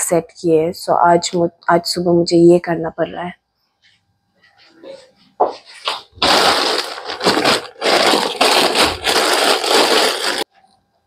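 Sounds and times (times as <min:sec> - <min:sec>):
plastic bags rustling and crinkling: 0:05.5 - 0:10.5.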